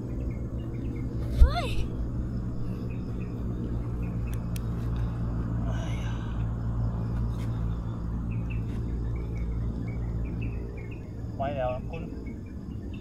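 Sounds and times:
bird chirps: 0:07.0 - 0:13.0.

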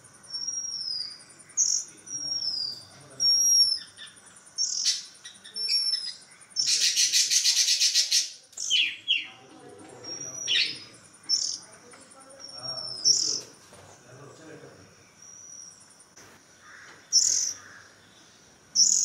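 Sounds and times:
bird rasping chatter: 0:00.0 - 0:13.6, 0:16.6 - 0:18.0
birds whistling: 0:00.0 - 0:13.6, 0:14.8 - 0:15.9, 0:16.6 - 0:19.0
downward-sweeping bird calls: 0:00.0 - 0:19.0.

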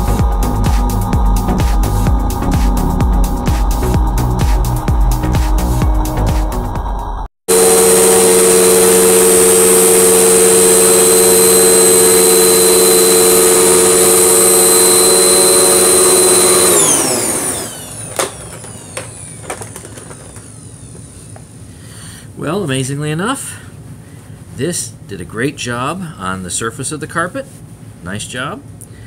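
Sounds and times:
vacuum cleaner motor whine: 0:07.5 - 0:21.7.

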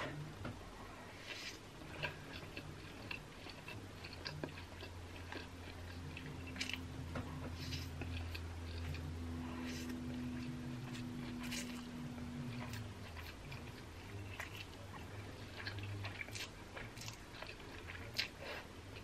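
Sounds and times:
person chewing noodles: 0:00.9 - 0:19.0.

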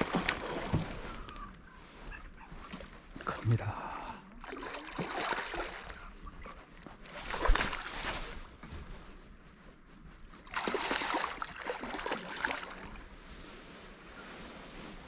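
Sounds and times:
fish splashing in water: 0:00.0 - 0:01.4, 0:04.4 - 0:06.6, 0:07.2 - 0:08.5, 0:10.5 - 0:13.0.

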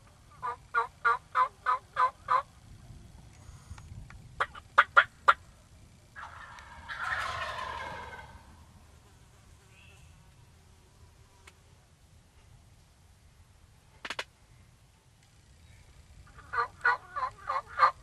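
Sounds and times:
turkey clucks: 0:00.3 - 0:02.5, 0:04.4 - 0:05.4, 0:06.2 - 0:08.5, 0:16.3 - 0:18.0
turkey gobble: 0:00.4 - 0:02.5, 0:04.4 - 0:05.4, 0:06.2 - 0:08.6, 0:16.3 - 0:18.0
turkey yelps: 0:00.4 - 0:02.5, 0:06.2 - 0:08.4, 0:16.3 - 0:18.0.

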